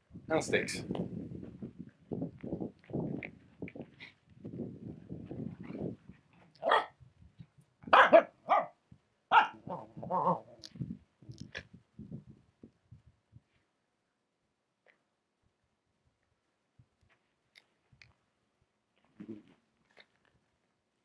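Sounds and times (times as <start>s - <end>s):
dog barking: 6.6s - 7.0s, 7.9s - 10.5s.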